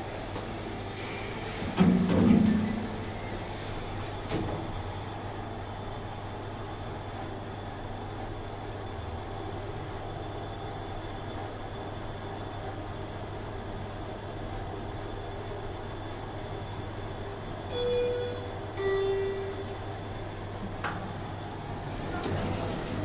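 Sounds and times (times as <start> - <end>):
elevator running hum: 0.0 - 23.0
two-note elevator chime: 17.7 - 19.9.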